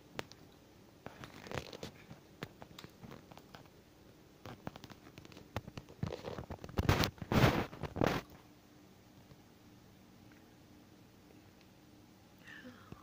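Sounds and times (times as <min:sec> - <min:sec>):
soft clicks and handling noises: 0:00.2 - 0:03.8.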